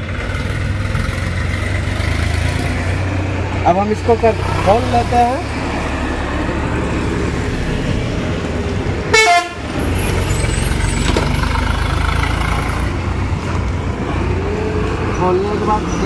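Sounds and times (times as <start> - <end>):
road traffic rumble: 0.0 - 16.0
vehicle horn toot: 9.1 - 9.6.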